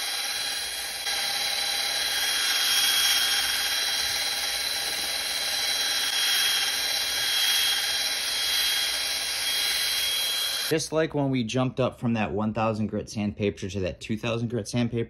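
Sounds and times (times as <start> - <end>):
drill whining with polishing pad: 0.0 - 10.7.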